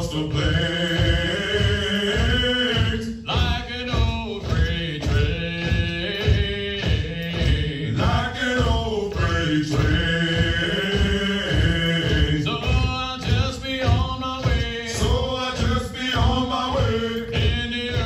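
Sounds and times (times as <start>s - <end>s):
military call-and-response chanting: 0.0s - 18.0s
steady beat: 0.0s - 18.0s.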